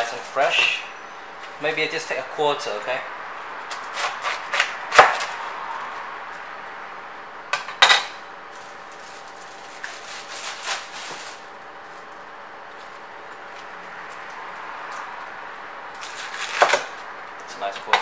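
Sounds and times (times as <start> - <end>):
cleaver chopping cauliflower: 3.7 - 5.3
rustling of cut cauliflower: 8.5 - 13.7.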